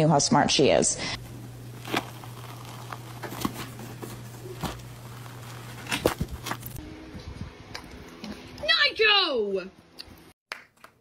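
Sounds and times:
steady low hum: 0:01.0 - 0:08.6
handling clicks and rustles: 0:01.7 - 0:06.8.

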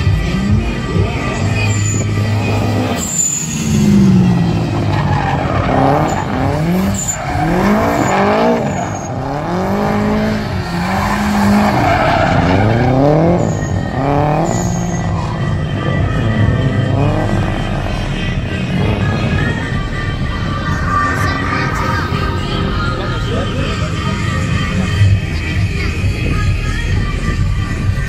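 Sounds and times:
car engine revving: 0:00.0 - 0:28.0
tyres screeching on tarmac: 0:01.2 - 0:16.2.

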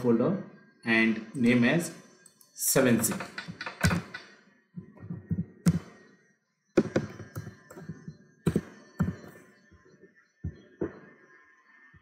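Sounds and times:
computer keyboard typing: 0:03.0 - 0:04.3, 0:06.8 - 0:09.4.

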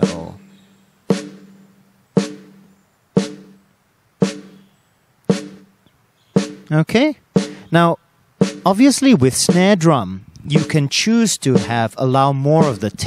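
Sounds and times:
snare drum hits with ring: 0:01.1 - 0:01.6, 0:02.2 - 0:02.6, 0:03.2 - 0:03.6, 0:04.2 - 0:04.6, 0:05.3 - 0:05.7, 0:06.4 - 0:06.7, 0:07.4 - 0:07.6, 0:08.4 - 0:08.8, 0:10.6 - 0:10.8, 0:11.6 - 0:11.8.

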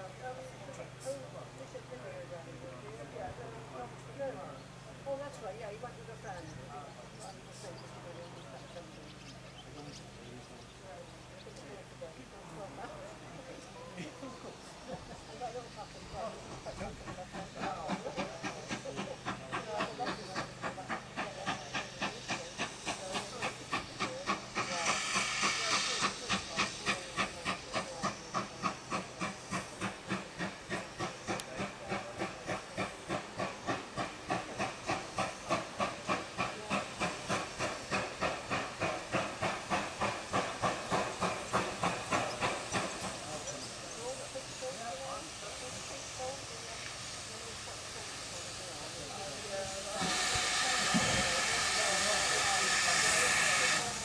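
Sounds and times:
steam locomotive chuffing: 0:00.0 - 0:54.0
steam hissing: 0:14.2 - 0:54.0.

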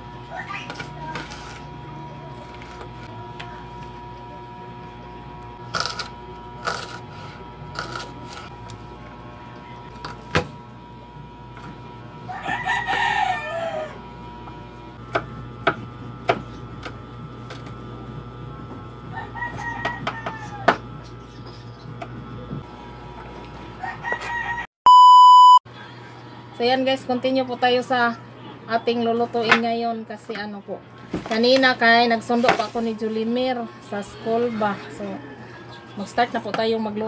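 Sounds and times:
faint hum: 0:00.0 - 0:37.0
rooster crowing: 0:12.2 - 0:14.2, 0:19.1 - 0:20.8, 0:23.8 - 0:24.7, 0:34.8 - 0:35.9.

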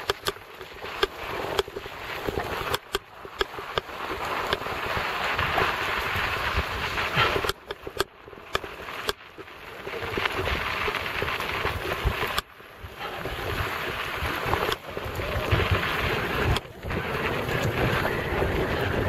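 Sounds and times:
mountain bike rattling downhill: 0:00.0 - 0:19.0
wind on microphone: 0:09.7 - 0:19.0.

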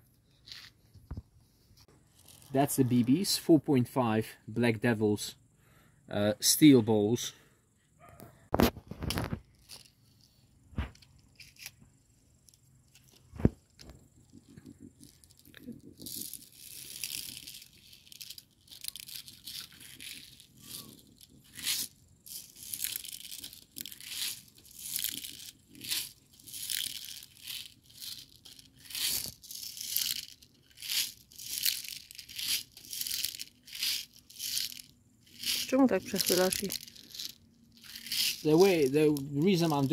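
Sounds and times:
metal bbs rattling in plastic bottle: 0:12.9 - 0:39.9.

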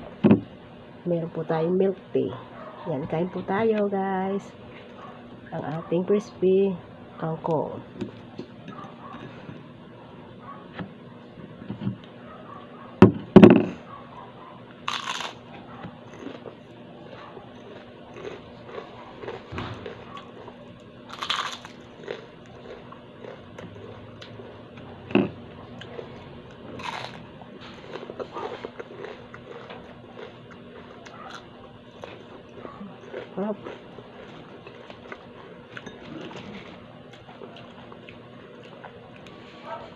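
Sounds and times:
crunching and chewing crispy food: 0:14.7 - 0:39.9.

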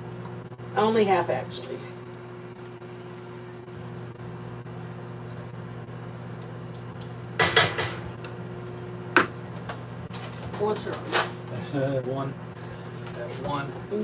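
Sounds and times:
wooden spoon knocking on skillet: 0:07.4 - 0:08.2.

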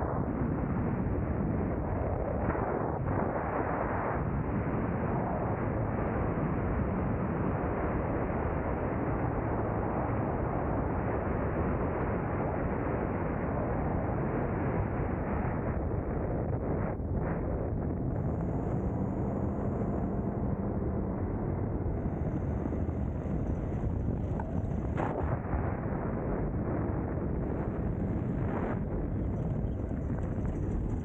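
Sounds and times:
wind buffeting microphone: 0:13.7 - 0:31.0
low rumble: 0:16.4 - 0:31.0.

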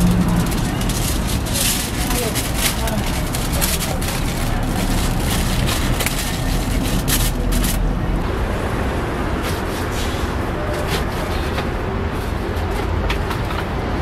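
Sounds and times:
aluminium foil crinkling: 0:00.0 - 0:08.0.

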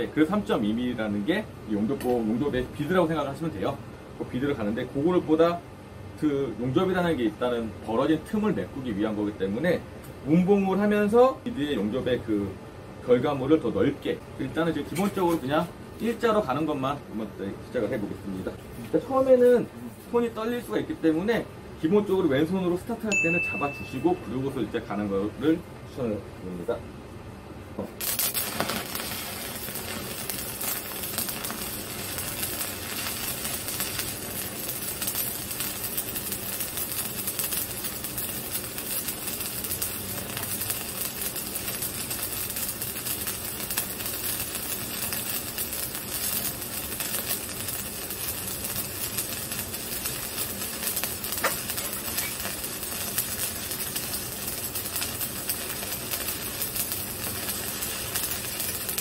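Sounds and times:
welding arc crackling: 0:28.0 - 0:59.0.

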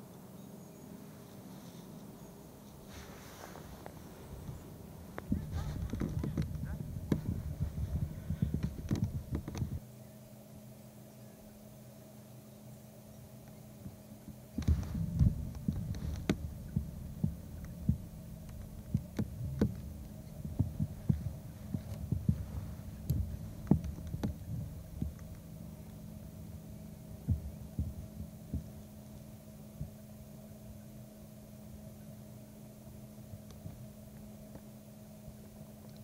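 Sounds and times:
steady low hum: 0:00.0 - 0:36.0
irregular knocks and thumps: 0:05.2 - 0:09.8, 0:14.3 - 0:26.0, 0:27.2 - 0:28.9.

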